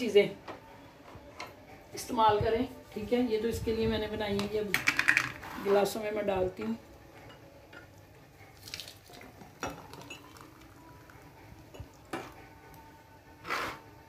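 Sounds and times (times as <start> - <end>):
glass and jar clinking on tray: 9.6 - 10.5.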